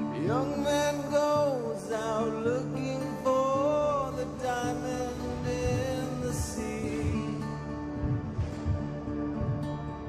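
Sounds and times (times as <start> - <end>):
song with held notes over beat: 3.3 - 10.0.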